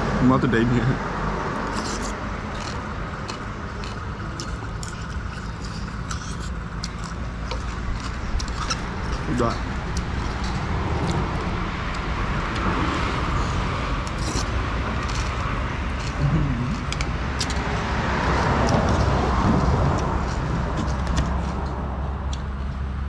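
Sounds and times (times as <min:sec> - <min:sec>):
road traffic passing: 0:00.0 - 0:23.0.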